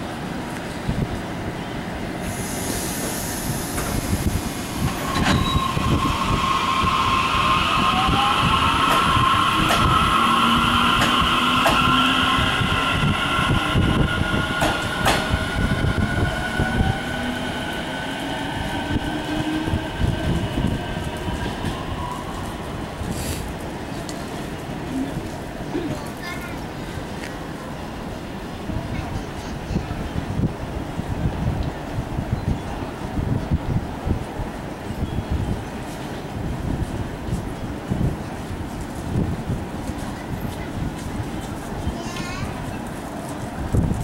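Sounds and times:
train rumble: 0.0 - 44.0
wheels clacking on rails: 3.1 - 27.4.

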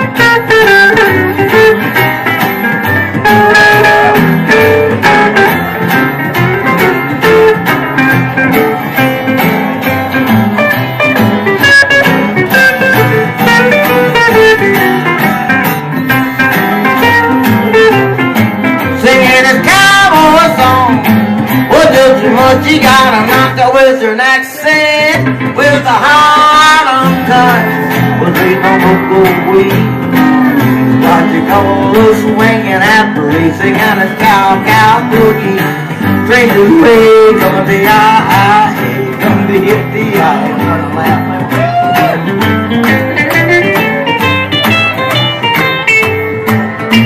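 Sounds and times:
steel guitar sliding notes: 0.0 - 23.4
country band playing: 0.0 - 47.0.

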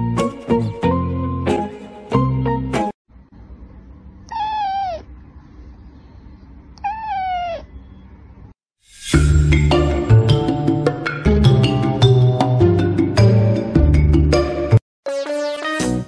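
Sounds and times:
kitten meowing: 4.3 - 5.1, 6.8 - 7.8.

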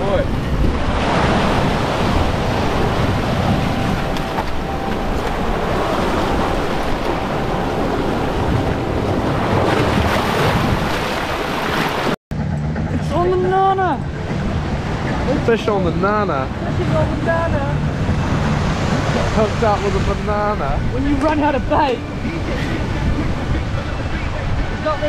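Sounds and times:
ocean surf breaking on rocks: 0.0 - 12.2
wind buffeting microphone: 0.0 - 25.0.

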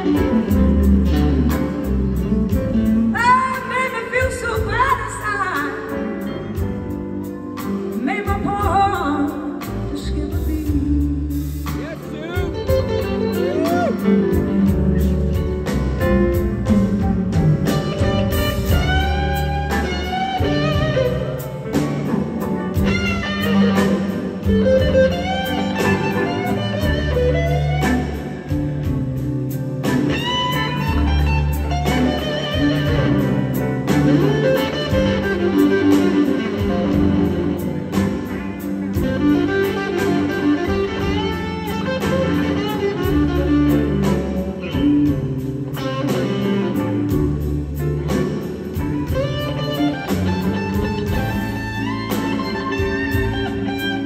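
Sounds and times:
live blues band: 0.0 - 54.0
electric guitar solo: 12.0 - 54.0.

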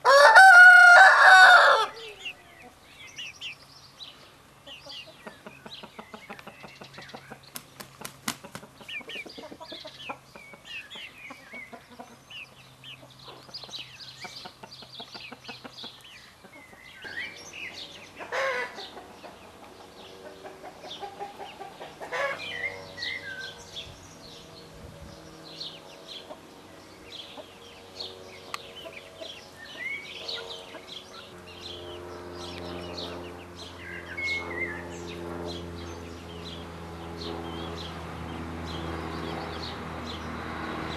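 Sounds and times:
chicken calls: 0.0 - 3.6, 4.6 - 23.8
chicks peeping: 0.1 - 40.9.

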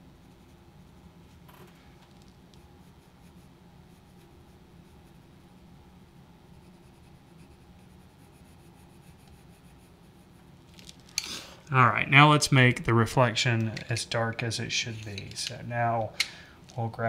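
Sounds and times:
low steady hum: 0.0 - 17.0
pencil scratching on paper: 0.2 - 0.6, 2.6 - 5.4, 6.5 - 10.4.

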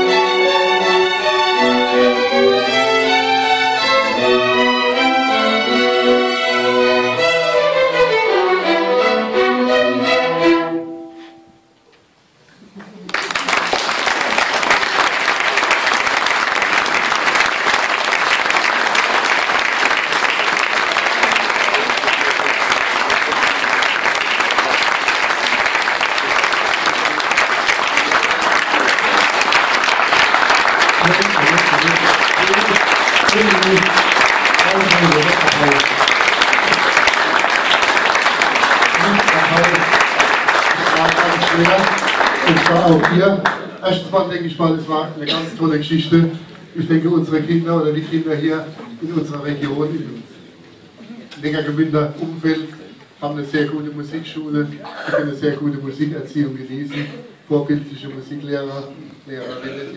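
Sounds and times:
violins playing: 0.0 - 11.6, 16.1 - 43.0
audience applauding: 13.0 - 43.8.

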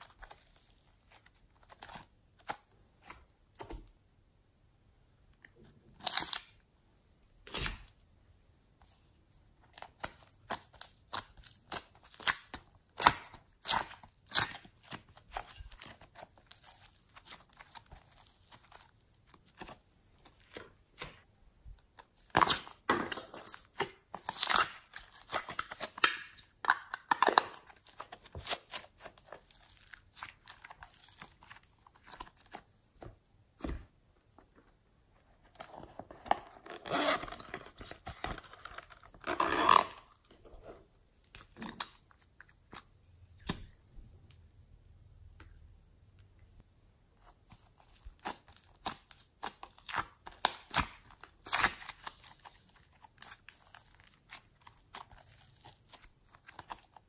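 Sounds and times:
clay and slime crackling: 8.8 - 36.6, 45.4 - 57.0.

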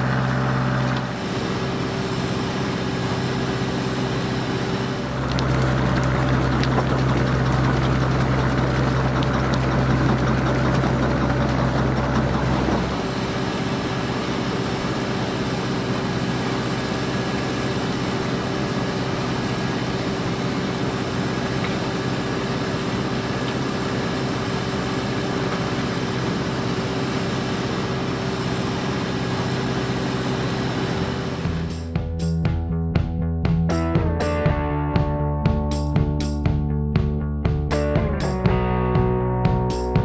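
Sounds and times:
deep engine hum: 0.0 - 40.0.

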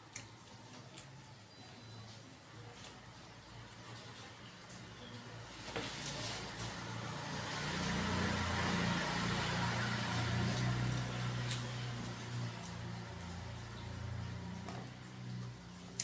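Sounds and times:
road noise: 0.4 - 16.0
passing vehicle engine hum: 5.4 - 16.0.

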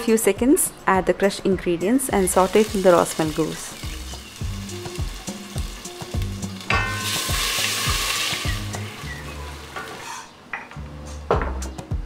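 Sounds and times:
soft background music: 0.0 - 12.0
spices sizzling in hot oil: 1.9 - 10.3.

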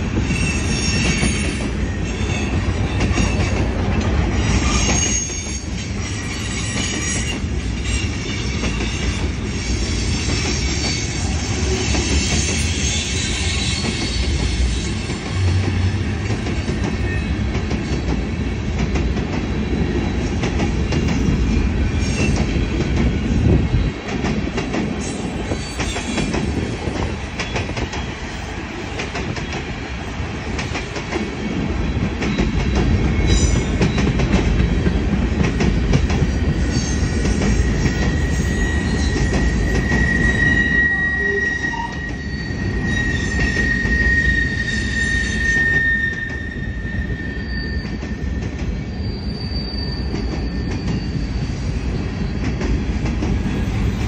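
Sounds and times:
freight train rumbling past: 0.0 - 54.0
high steady squeal: 36.4 - 52.4.

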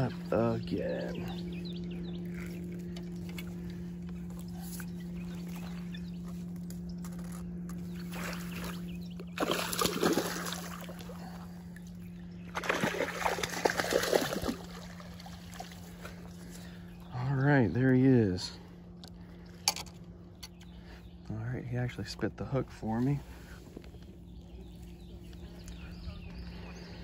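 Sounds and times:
fish thrashing and splashing: 7.9 - 11.5, 12.5 - 16.5.

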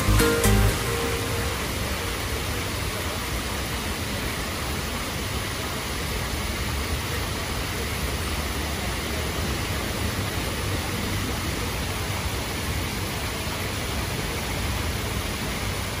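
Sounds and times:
water streaming down a wall: 4.2 - 16.0.

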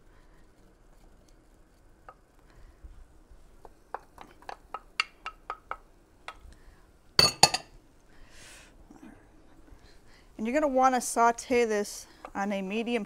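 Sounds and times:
spoon tapping and scraping pan: 3.6 - 6.4.

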